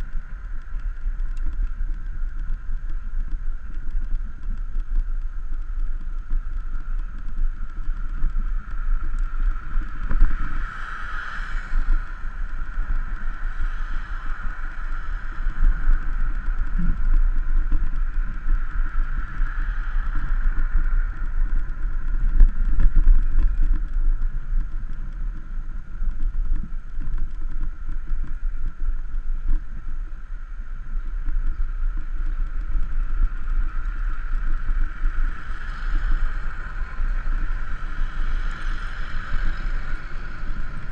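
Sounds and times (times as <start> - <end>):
road rumble: 0.0 - 40.9
steady hiss: 0.0 - 40.9
wind buffeting microphone: 0.0 - 40.9
cars passing: 32.6 - 40.9.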